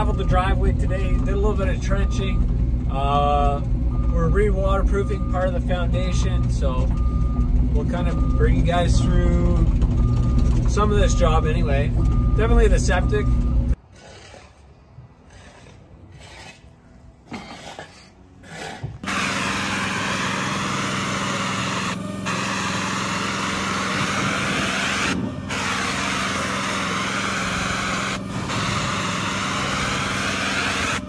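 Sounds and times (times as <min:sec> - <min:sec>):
loud spray hiss: 0:19.0 - 0:31.0.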